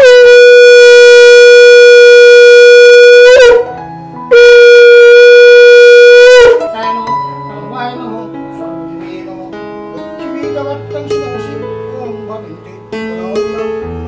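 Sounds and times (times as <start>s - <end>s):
conch shell blasts: 0.0s - 3.7s, 4.3s - 6.6s.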